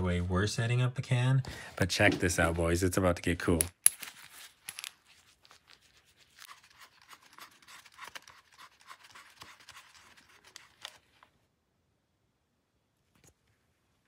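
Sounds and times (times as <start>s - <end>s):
rustling and scraping: 3.9s - 11.4s.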